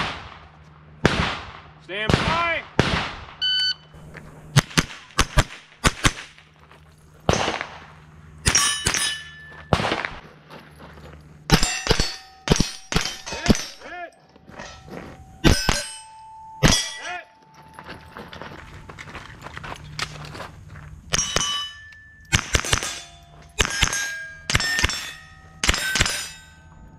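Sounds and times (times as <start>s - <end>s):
rifle shots: 0.0s - 3.4s, 4.6s - 6.4s, 7.3s - 9.1s, 9.7s - 10.2s, 22.3s - 26.3s
steel plates clanging: 8.4s - 9.7s, 11.5s - 18.5s, 21.1s - 26.9s.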